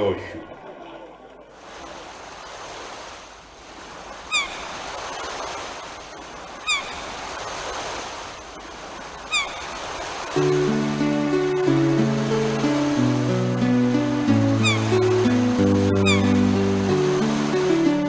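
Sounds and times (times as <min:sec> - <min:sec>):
sea surf rushing: 0:00.2 - 0:18.0
gull crying: 0:14.3 - 0:16.7.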